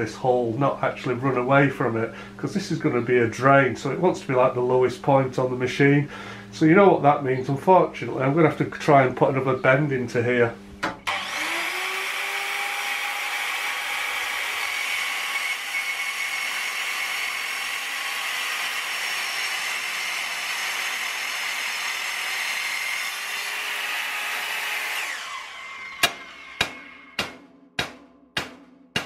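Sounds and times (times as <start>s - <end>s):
circular saw cutting steel: 11.0s - 27.2s
saw blade winding down: 11.0s - 27.2s
drum hit: 26.0s - 29.0s.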